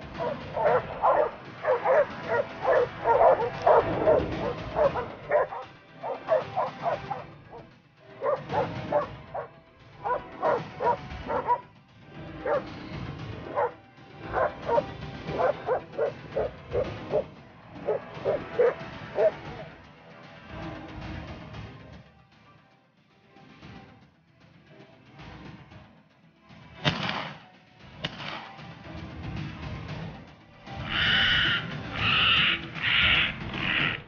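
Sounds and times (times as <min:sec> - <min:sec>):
dogs barking and yelping: 0:00.0 - 0:11.7, 0:12.3 - 0:19.7, 0:30.8 - 0:34.0.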